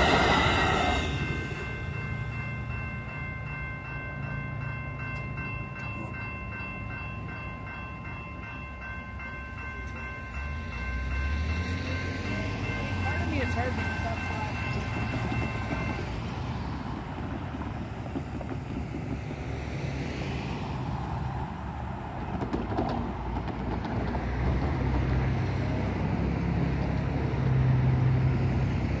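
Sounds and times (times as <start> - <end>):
railroad crossing bells: 0.0 - 23.1, 23.7 - 29.0
car engines and tyre noise: 9.8 - 13.8, 14.4 - 29.0.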